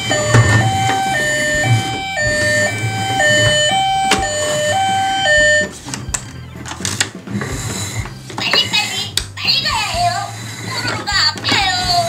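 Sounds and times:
toy siren two-tone: 0.0s - 6.7s.

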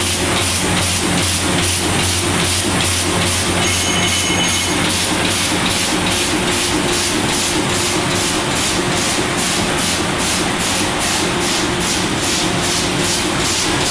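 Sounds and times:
printing press hum: 0.0s - 13.9s
rhythmic hiss of printing press: 0.0s - 13.9s.

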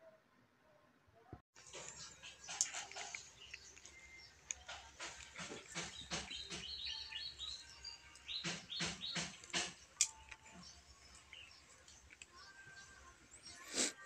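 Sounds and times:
high bird chirps: 1.6s - 13.6s.

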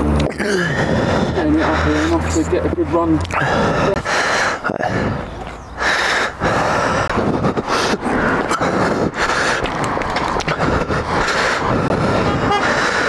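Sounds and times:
person breathing hard: 0.4s - 2.4s, 3.3s - 13.0s.

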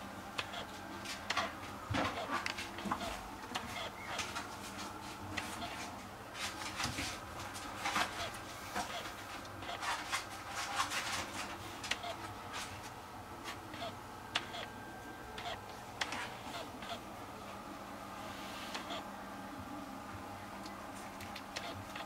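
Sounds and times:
soft irregular clicks: 0.4s - 1.6s, 11.9s - 12.2s, 13.8s - 17.0s.

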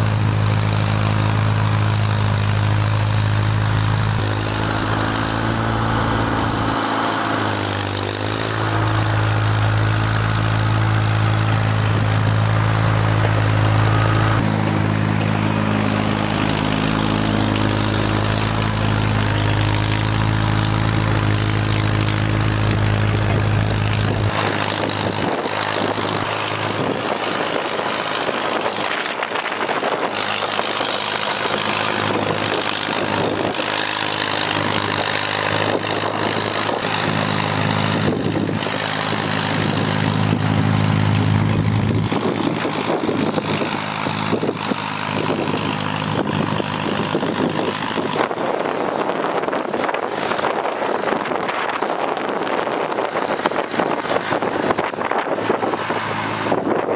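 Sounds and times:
tractor engine running: 0.0s - 56.9s.

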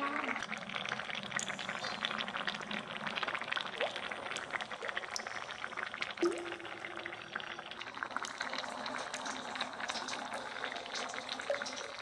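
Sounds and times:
curry boiling in metal pan: 0.0s - 12.0s.

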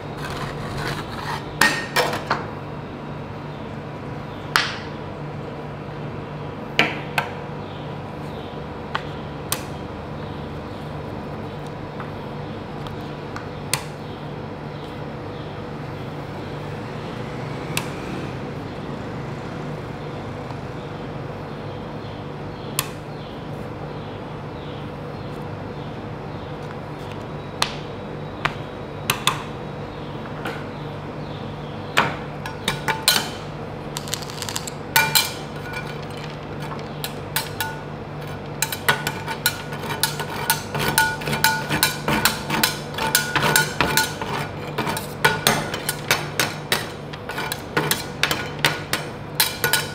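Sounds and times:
low machine hum: 0.0s - 49.9s
metal spatulas clanking on steel plate: 37.0s - 49.9s.

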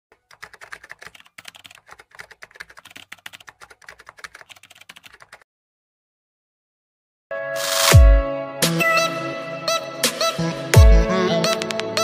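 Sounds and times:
rapid keyboard typing clicks: 0.1s - 5.4s.

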